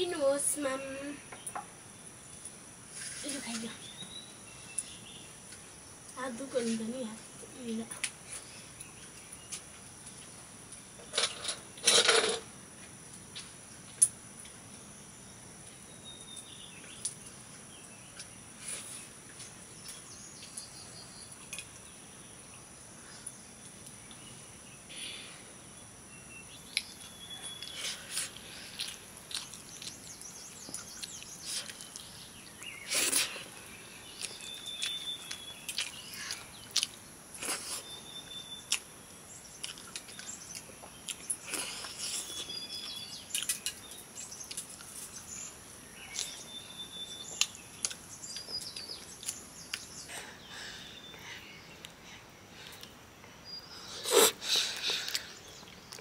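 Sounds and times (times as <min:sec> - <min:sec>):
insects trilling: 0:00.0 - 0:56.0.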